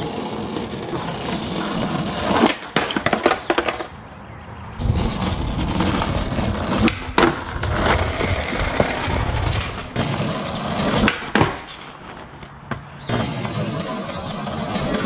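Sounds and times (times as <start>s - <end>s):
skateboard tail clacks: 0.0s - 3.9s, 4.8s - 15.0s
skateboard wheels rolling on asphalt: 0.0s - 15.0s.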